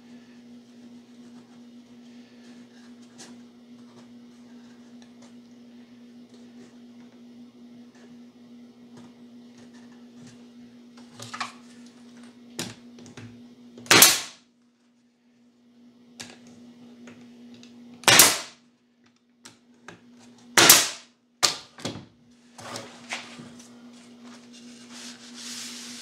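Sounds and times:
faint steady hum: 0:00.0 - 0:26.0
nail gun firing: 0:13.9 - 0:14.4, 0:18.0 - 0:18.6, 0:20.6 - 0:21.6.

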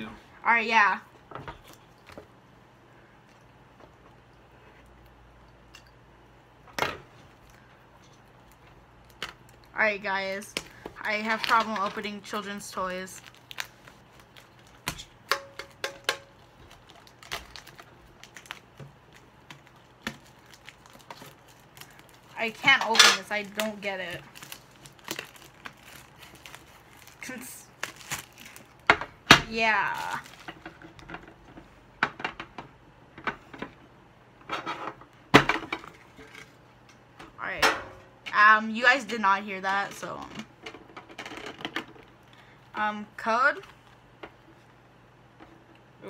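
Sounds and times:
plastic wrap crinkling: 0:07.3 - 0:31.5.

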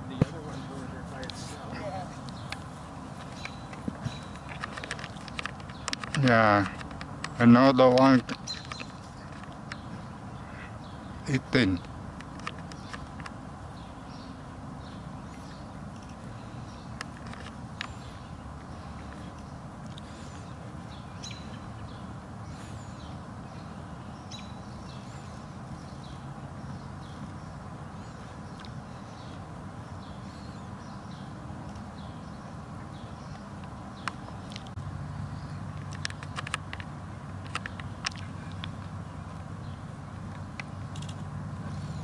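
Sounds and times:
bird chirps: 0:00.0 - 0:06.1, 0:08.3 - 0:11.9, 0:13.7 - 0:34.5
sharp clicks: 0:02.2 - 0:09.9, 0:11.8 - 0:13.4, 0:35.7 - 0:39.0, 0:40.3 - 0:41.3.

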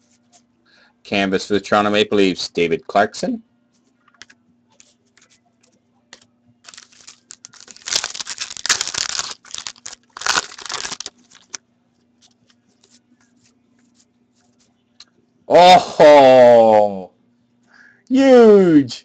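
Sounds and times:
cards ticking and tapping: 0:06.1 - 0:11.6
foil wrapper tearing and crinkling: 0:06.6 - 0:11.6.

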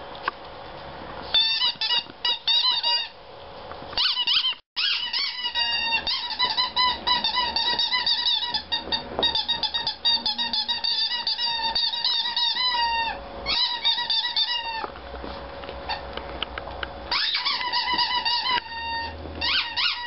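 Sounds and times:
squeaky toy squeaking: 0:01.3 - 0:03.2, 0:04.0 - 0:14.9, 0:17.1 - 0:20.0.

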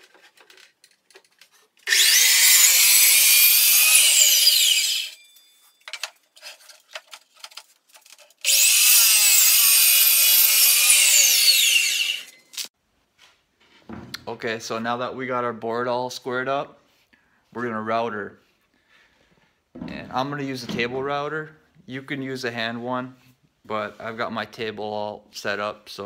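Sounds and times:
chop saw cutting wood: 0:01.8 - 0:05.2, 0:08.4 - 0:12.4.

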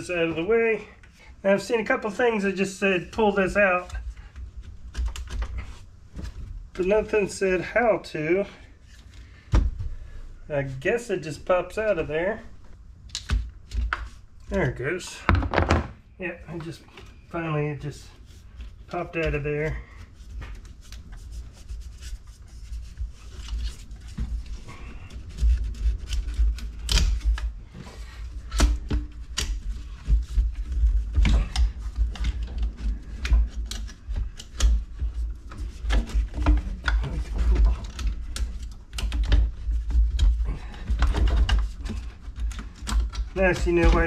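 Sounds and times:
plastic clicks and rattles of hoses: 0:03.0 - 0:06.4, 0:23.2 - 0:27.5, 0:28.2 - 0:44.0.

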